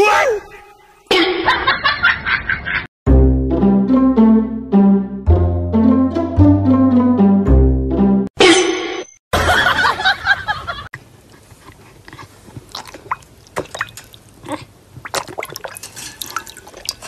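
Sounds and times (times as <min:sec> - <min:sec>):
dog lapping water: 0:11.7 - 0:17.0.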